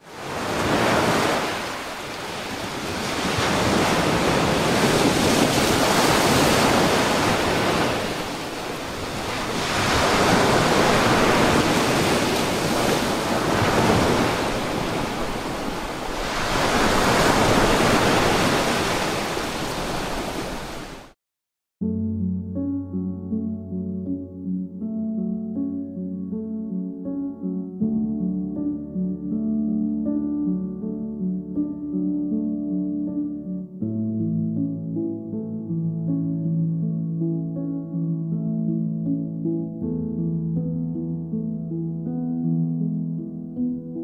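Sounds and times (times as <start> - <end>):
surf washing over rocks: 0.0 - 21.2.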